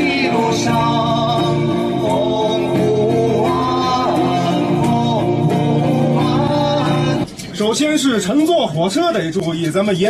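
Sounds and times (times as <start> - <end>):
men singing folk song: 0.0 - 7.5
acoustic guitar: 0.0 - 10.0.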